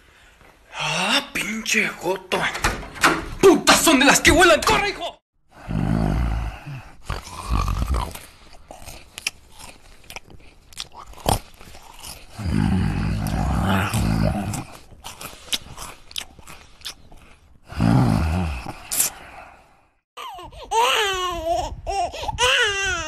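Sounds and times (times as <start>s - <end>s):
man growling: 5.6s - 8.2s, 12.3s - 14.7s, 17.7s - 18.8s
man chewing crunchy food: 7.0s - 17.7s.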